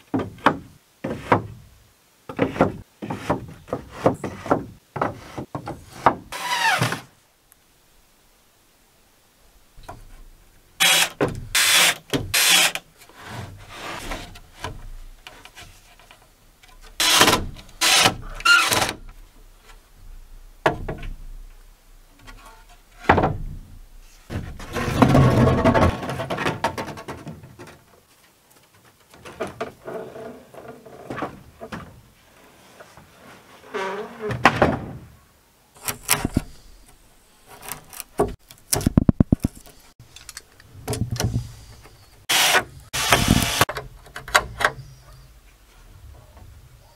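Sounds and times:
sharp wooden knocks: 2.3s - 6.3s
rough noisy scraping: 24.0s - 26.4s.

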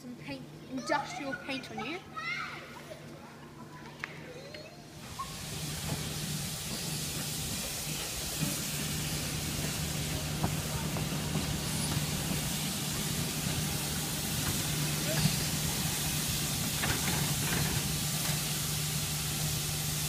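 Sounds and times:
steam locomotive hissing steam: 5.0s - 20.0s.

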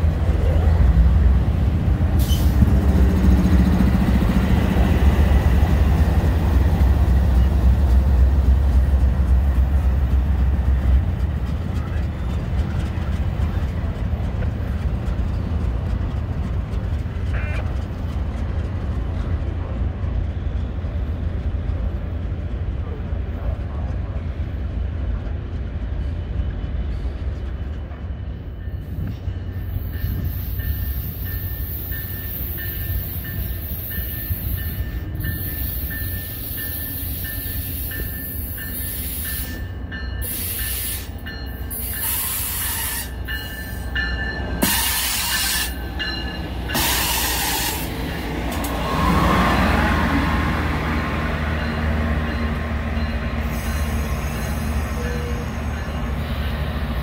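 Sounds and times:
train rumbling past: 0.0s - 57.0s
wheels squealing on rail: 2.2s - 3.2s, 25.9s - 50.2s, 51.6s - 56.9s.

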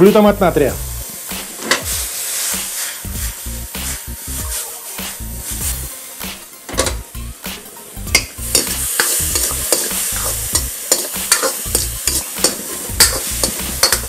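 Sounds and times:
vegetables sizzling in a wok: 0.0s - 14.0s
spatula scraping a wok: 1.1s - 5.9s, 7.8s - 14.0s
metal clinks against wok: 8.2s - 10.0s, 10.6s - 14.0s.

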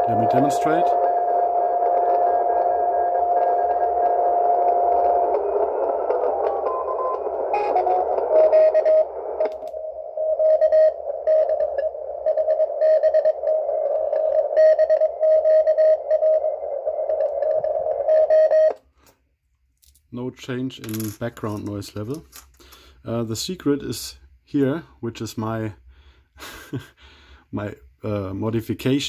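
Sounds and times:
radio band hiss: 0.0s - 18.3s
morse code signals: 0.0s - 18.8s
stepped tuning tones: 0.0s - 18.8s.

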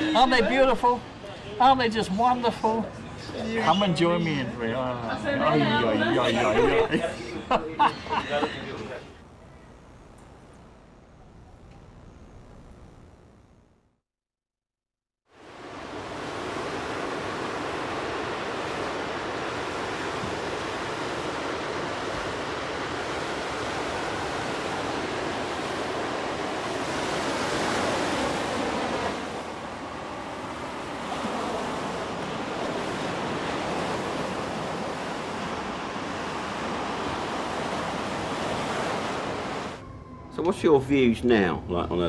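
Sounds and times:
ocean waves breaking on beach: 0.0s - 4.4s, 15.3s - 39.8s.

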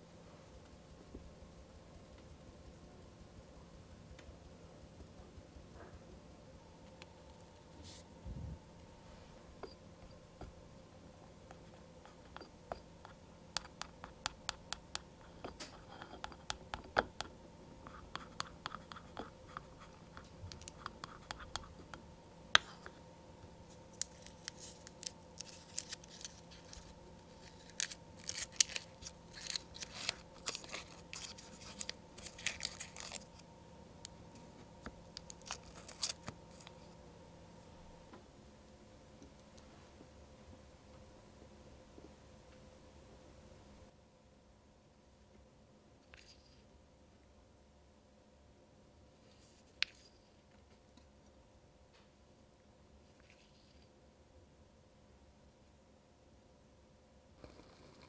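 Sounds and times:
utensil scraping ceramic bowl: 15.2s - 22.0s
wrapper crackling and tearing: 24.0s - 33.4s.

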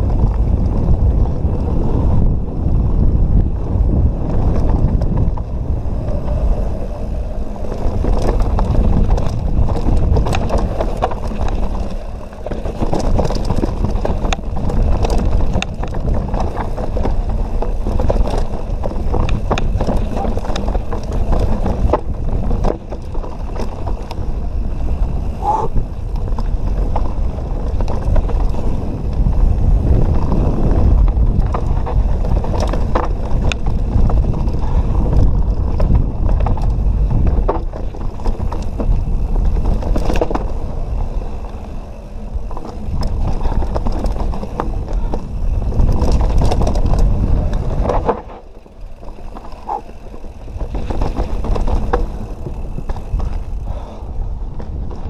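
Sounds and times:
bike rattling and knocking: 0.0s - 55.0s
bike tyres rumbling: 0.0s - 55.0s
wind buffeting: 0.0s - 55.0s.

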